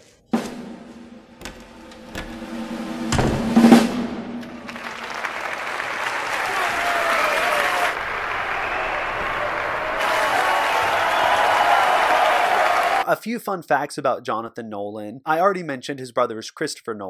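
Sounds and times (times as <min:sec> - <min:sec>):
loud drum-like hit: 0:00.4 - 0:04.8
soft knocks: 0:01.3 - 0:03.7
audience applauding: 0:04.4 - 0:13.0.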